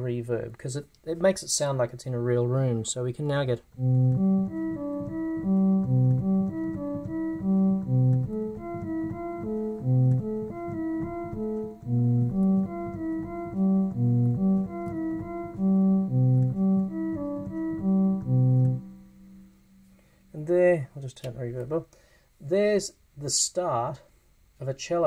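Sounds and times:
cello-like synthesizer notes: 3.8 - 19.9.

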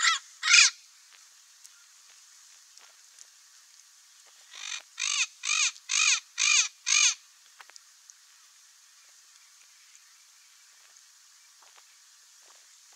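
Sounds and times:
parrot squawking: 0.0 - 0.8, 4.5 - 7.2.

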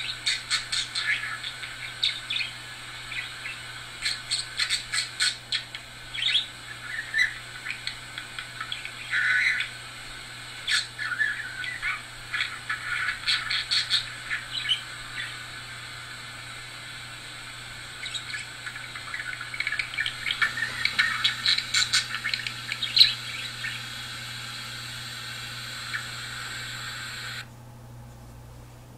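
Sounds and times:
budgerigar chirping and squawking: 0.0 - 9.8, 10.6 - 15.4, 18.0 - 24.0.

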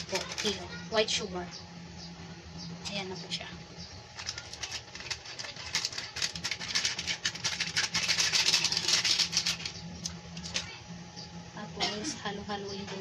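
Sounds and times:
packet crinkling and rustling: 0.0 - 0.8, 4.1 - 10.8.

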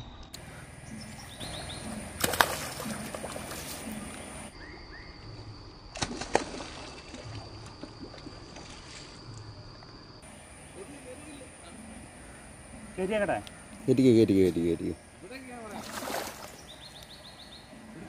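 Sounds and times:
small water sounds: 1.4 - 4.5, 6.0 - 11.2, 15.2 - 17.2
fish splashing in water: 2.0 - 4.5, 6.0 - 9.1, 15.7 - 16.7.

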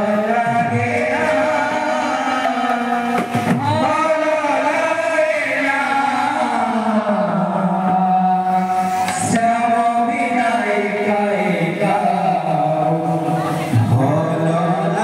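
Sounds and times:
men chanting in unison: 0.0 - 15.0
barrel drum: 0.4 - 4.1.

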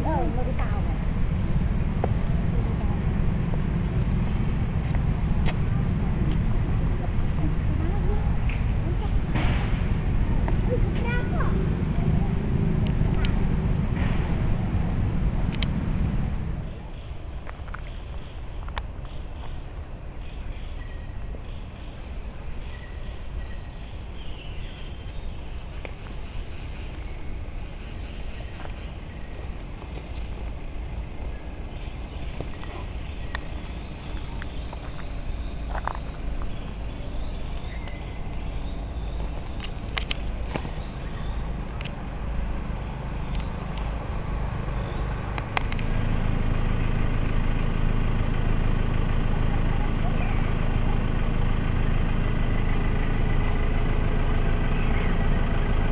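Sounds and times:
car engine idling: 0.0 - 55.9
low outdoor rumble: 0.0 - 55.9.

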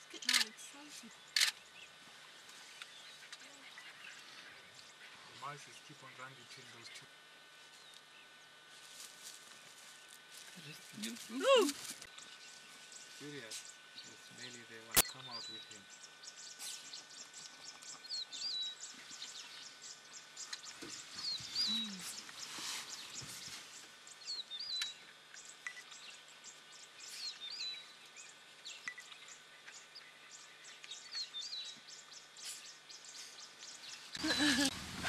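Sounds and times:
faint ticks and rustles: 0.1 - 5.6, 6.9 - 13.8.

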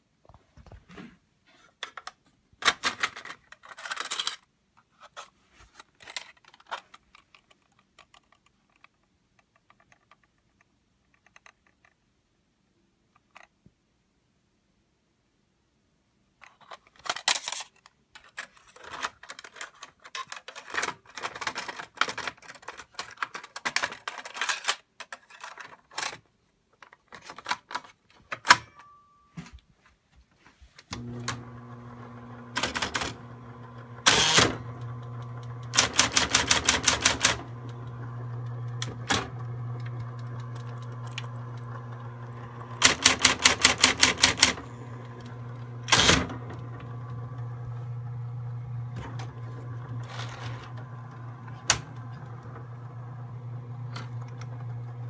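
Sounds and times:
rapid typewriter strikes: 32.6 - 33.2, 35.7 - 37.5, 42.8 - 44.6, 45.9 - 46.4
typewriter key clicks: 32.6 - 33.2, 35.7 - 37.6, 42.8 - 44.6.

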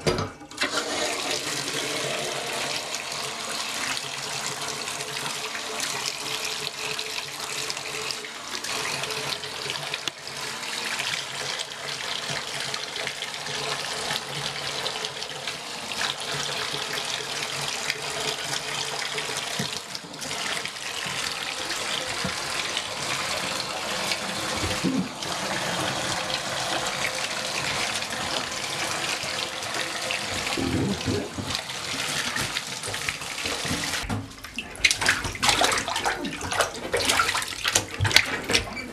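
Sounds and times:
bathtub tap running: 0.0 - 8.1, 11.0 - 38.9
water splashing into tub: 15.9 - 38.9.

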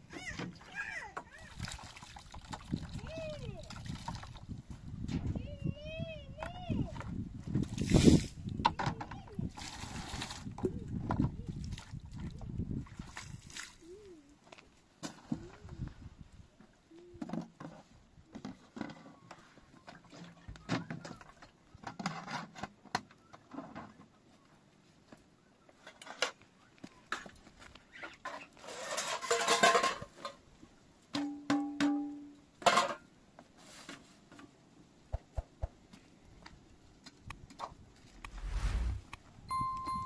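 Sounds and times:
water splashing from pitcher: 1.4 - 3.0, 3.6 - 4.4.

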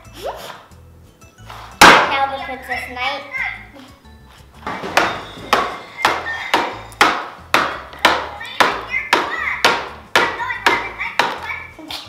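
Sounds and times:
music with percussive beat: 4.5 - 11.8.

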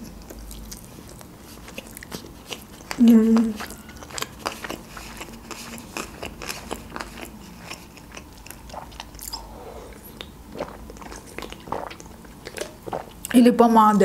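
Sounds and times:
person chewing food: 0.0 - 13.3
sipping and swallowing: 1.6 - 13.3.

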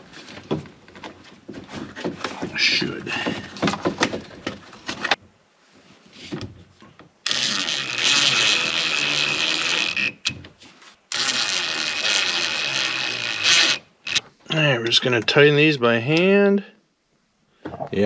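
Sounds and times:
power drill driving screws: 7.2 - 10.3, 11.1 - 14.2.

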